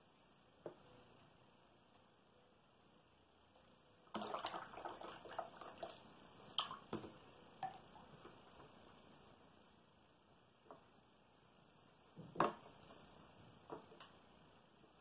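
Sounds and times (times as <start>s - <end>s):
paintbrush rinsed in water jar: 4.1s - 7.0s.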